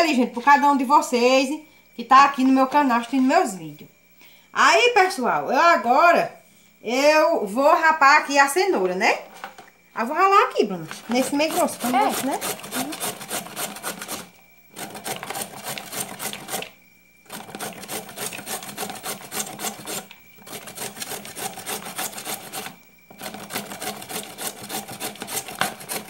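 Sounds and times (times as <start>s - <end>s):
carrot scraping on metal grater: 10.9s - 26.0s.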